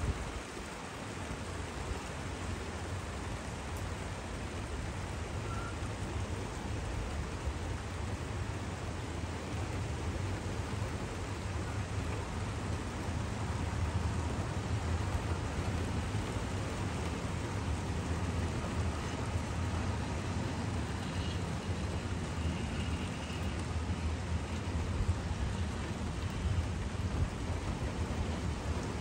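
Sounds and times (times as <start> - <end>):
train wheels rumbling on rail: 8.0 - 29.0.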